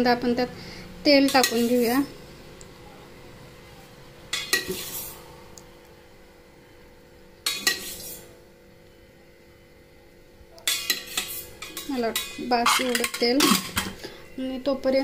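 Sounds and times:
steel utensils clattering: 7.4s - 8.1s, 10.7s - 14.0s.

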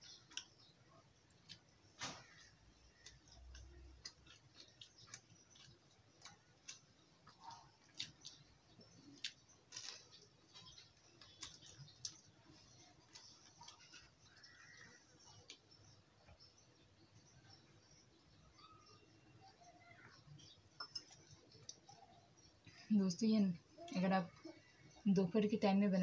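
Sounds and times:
person chewing crunchy food: 0.0s - 16.0s.

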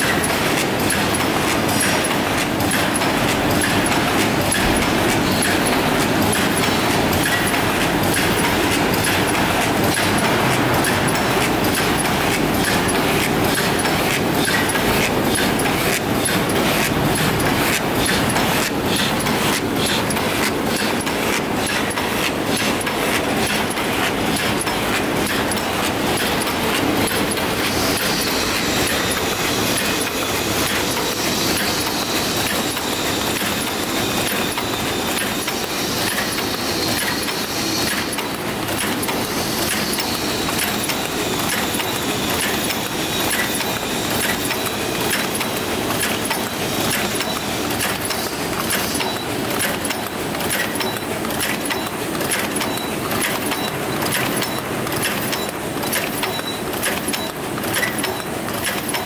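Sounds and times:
paper cup machine clattering: 0.2s - 28.1s, 37.9s - 59.0s
faint high machine whine: 25.5s - 59.0s.

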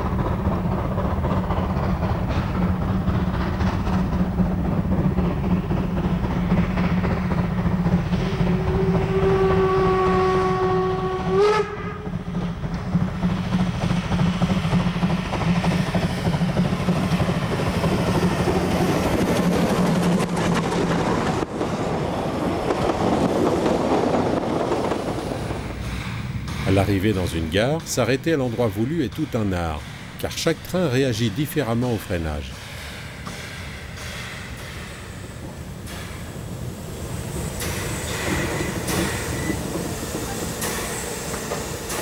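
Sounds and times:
steam locomotive running: 0.0s - 42.0s
steam whistle: 8.7s - 12.1s.

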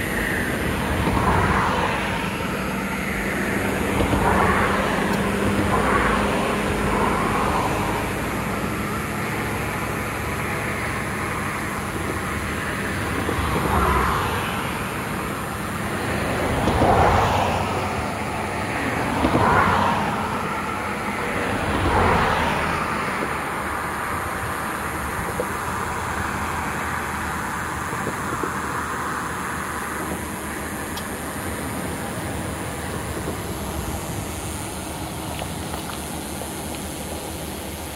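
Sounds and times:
road traffic noise: 0.0s - 37.9s
vehicles passing: 0.0s - 37.9s.

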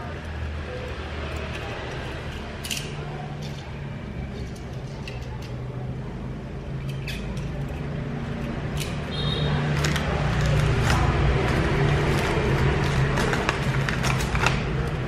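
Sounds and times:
metal toy clicking on tiles: 0.1s - 3.7s, 4.4s - 5.6s, 6.8s - 9.1s.

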